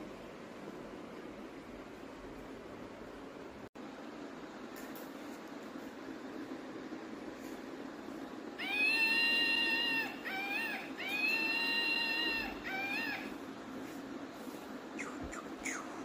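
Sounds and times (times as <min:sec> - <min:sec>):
cat meowing: 0:08.6 - 0:13.3.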